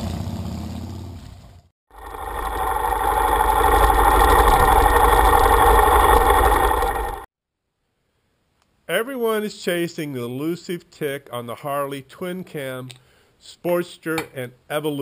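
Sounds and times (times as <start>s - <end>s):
motorcycle engine running: 1.9s - 7.3s.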